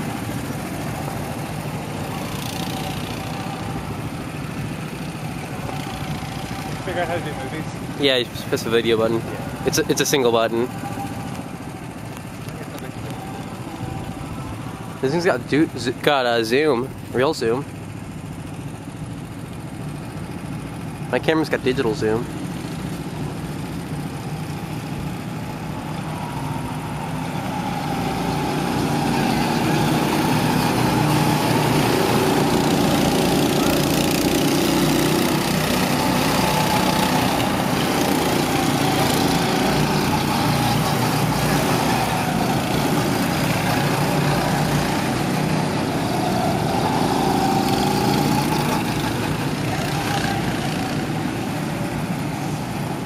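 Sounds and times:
go-kart engines running: 0.0 - 53.0.

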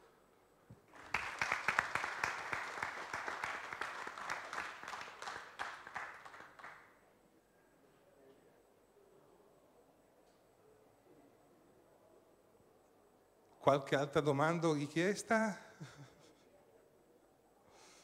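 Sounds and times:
many hands clapping: 0.9 - 7.0.

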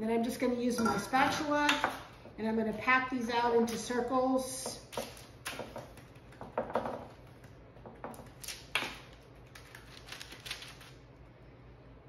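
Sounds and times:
spatula patting mixture: 0.8 - 9.8.

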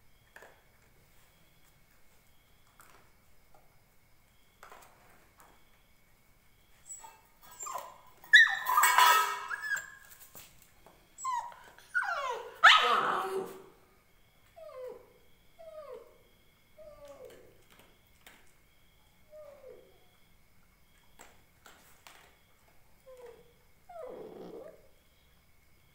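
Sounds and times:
puppy whimpering: 6.9 - 10.1, 11.2 - 13.7, 14.6 - 16.2, 23.1 - 25.0
puppy yelping: 6.9 - 10.1, 11.2 - 13.7.

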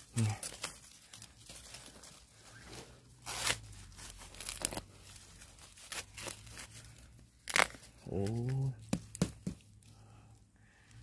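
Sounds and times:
dry bamboo crackling and tearing: 0.0 - 8.8
bamboo shoot cracking off: 7.4 - 9.3.

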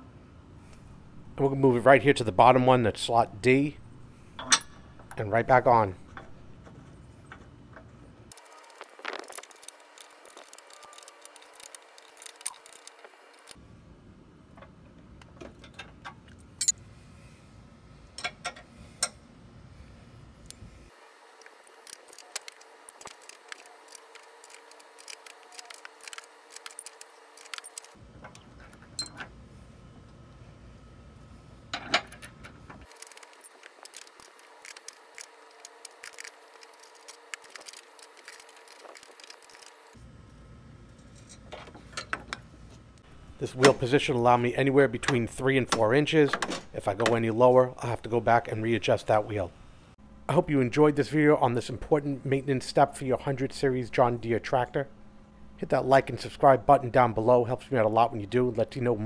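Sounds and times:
wrenches clinking on metal: 4.4 - 5.3.

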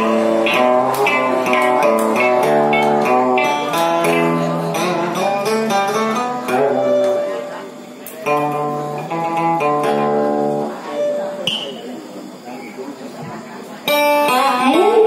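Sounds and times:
plucked strings melody: 0.0 - 7.5.

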